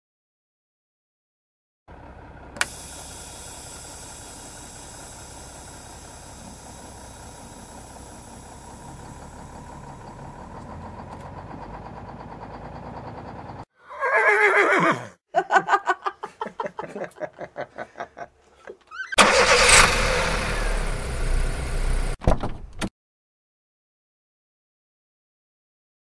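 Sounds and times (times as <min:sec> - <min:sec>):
pickup truck engine running: 0:01.9 - 0:13.6, 0:19.2 - 0:22.2.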